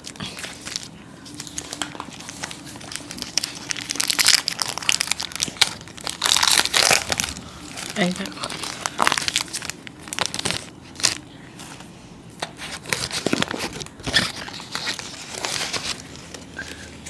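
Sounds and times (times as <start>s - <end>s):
wrappers crinkling and tearing: 0.0s - 11.3s, 12.4s - 16.9s.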